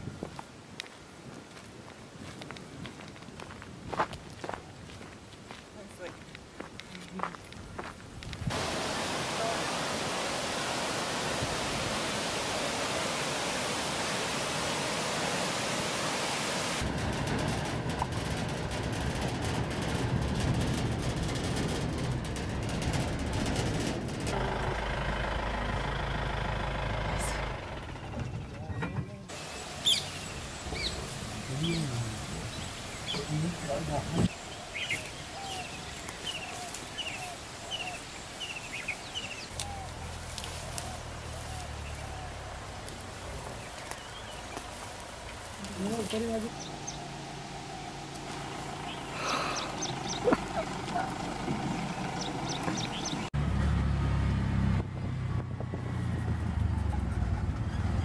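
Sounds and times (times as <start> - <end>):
waterfall rushing over rocks: 8.5 - 16.9
bird chirping: 29.4 - 40.1, 40.8 - 48.0, 48.8 - 51.1, 51.7 - 53.3.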